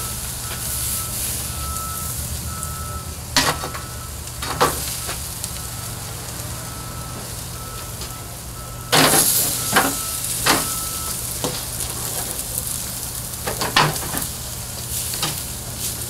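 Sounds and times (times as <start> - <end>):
ribs sizzling on a grill: 0.0 - 16.0.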